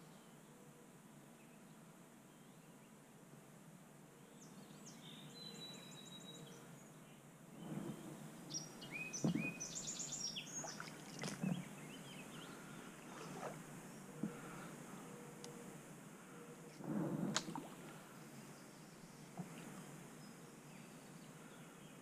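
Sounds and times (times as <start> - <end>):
small birds singing and chirping: 4.2 - 15.7.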